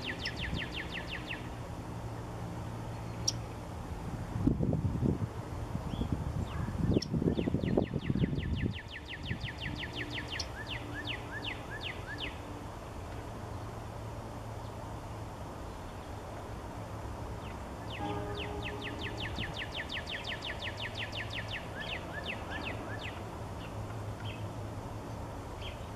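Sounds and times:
warbler singing trill: 0.0s - 1.6s, 2.8s - 3.6s, 5.9s - 12.6s, 17.4s - 24.5s
steady low hum: 0.0s - 25.9s.

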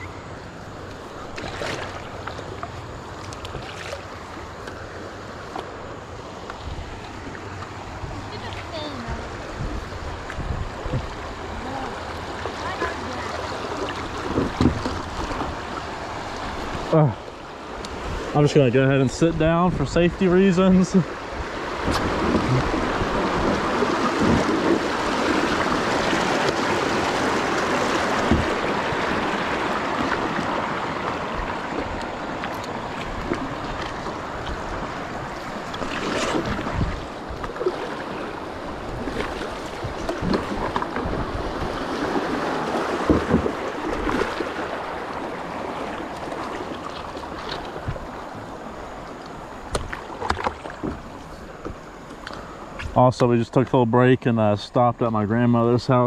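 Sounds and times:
rushing river rapids: 0.0s - 52.1s
knocks and splashes: 1.2s - 4.8s, 9.6s - 17.0s, 20.8s - 48.4s, 49.6s - 51.9s.

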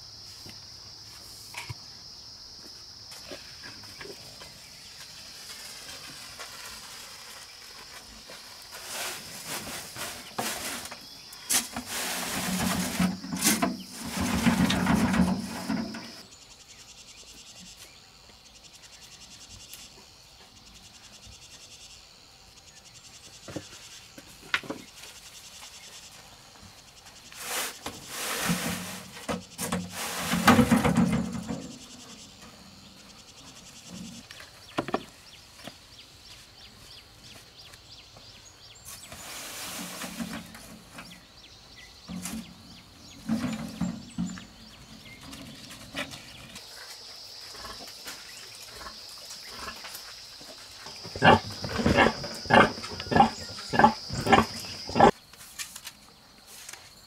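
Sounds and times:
high insect trill: 41.0s - 57.0s.

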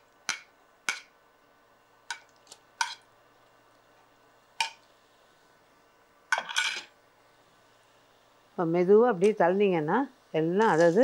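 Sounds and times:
spoon scraping a plate: 2.8s - 3.0s, 6.4s - 6.9s.

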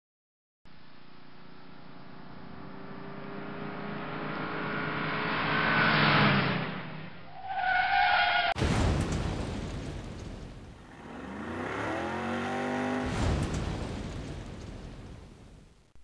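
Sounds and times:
car engine passing: 2.1s - 8.6s, 10.8s - 13.3s
tires screeching: 3.2s - 8.6s
sudden loud burst of noise: 7.3s - 11.4s.

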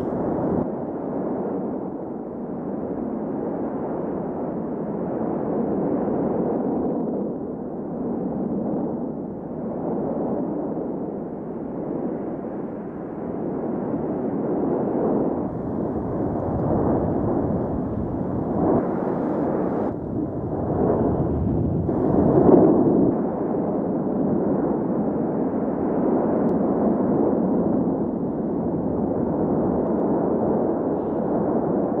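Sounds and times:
lava fountain rushing rumble: 0.0s - 0.6s, 15.4s - 24.9s.

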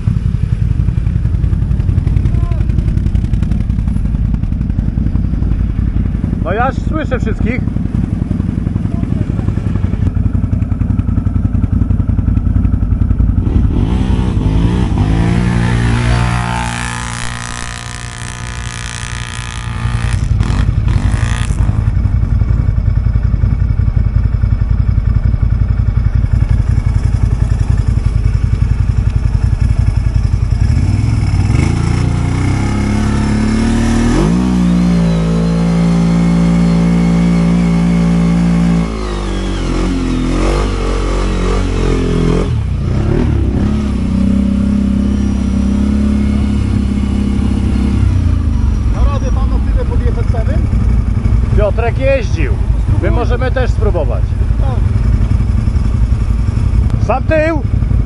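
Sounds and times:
quad bike engine revving: 0.0s - 23.8s, 24.5s - 58.0s.

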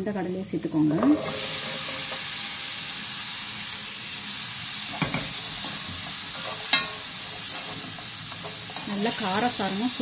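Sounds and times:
food sizzling in oil: 0.0s - 10.0s
spatula knocking pan: 5.0s - 9.3s.

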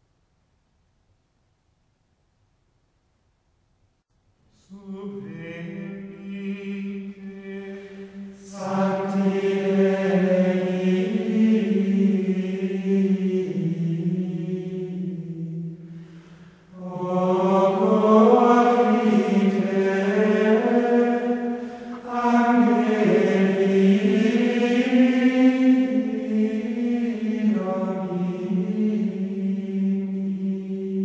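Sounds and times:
vocal chant in unison: 4.5s - 31.0s.

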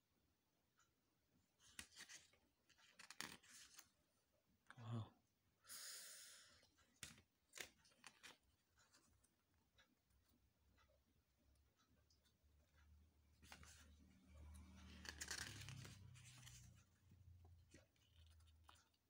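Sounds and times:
paper pages rustling: 1.6s - 4.0s, 7.0s - 9.1s, 13.4s - 19.0s
sliding paper rustle: 14.6s - 16.9s.

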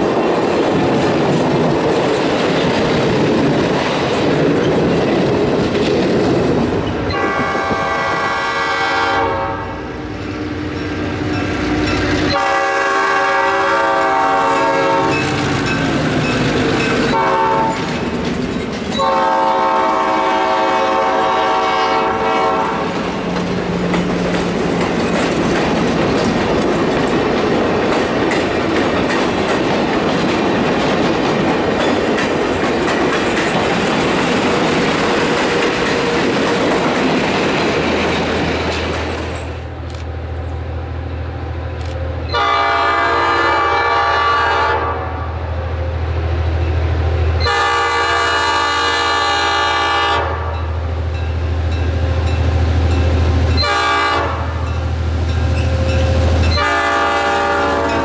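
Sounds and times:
train wheels rolling on rails: 0.0s - 9.1s, 10.0s - 44.6s, 45.6s - 58.0s
diesel locomotive engine drone: 0.0s - 58.0s
locomotive air horn blasts: 7.1s - 10.0s, 12.3s - 15.2s, 17.1s - 17.9s, 19.0s - 22.9s, 42.2s - 45.3s, 47.4s - 50.6s, 53.6s - 54.6s, 56.5s - 58.0s.

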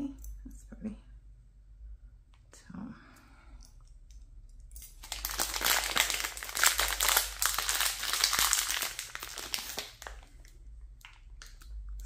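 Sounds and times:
plastic packaging crinkling: 4.8s - 11.7s.

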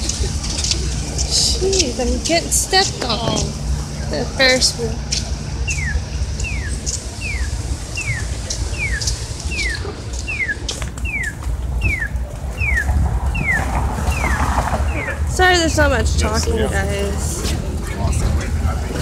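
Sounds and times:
crosswalk signal chirping: 0.0s - 18.9s
street traffic rumble: 0.0s - 19.0s.

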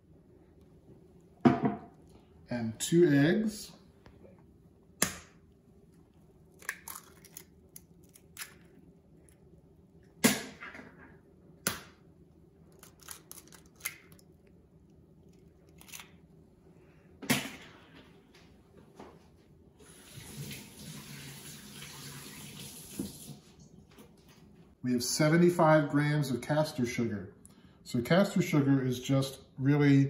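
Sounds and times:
faint steady hum: 0.0s - 30.0s
eggs cracking against metal bowl: 6.5s - 9.4s, 12.7s - 14.5s.

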